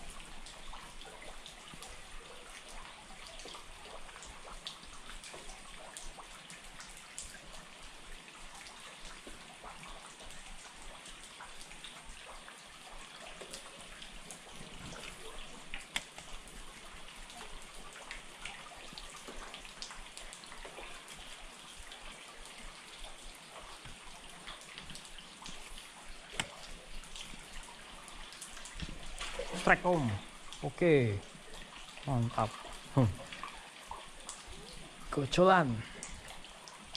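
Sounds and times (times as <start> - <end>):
rain falling on a river: 0.0 - 36.9.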